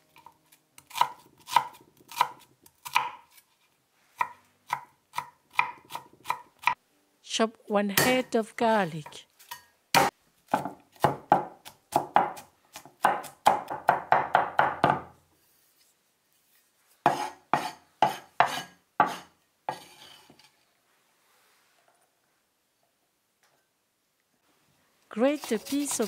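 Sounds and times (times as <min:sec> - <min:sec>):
cleaver chopping on wooden board: 0:10.0 - 0:15.1.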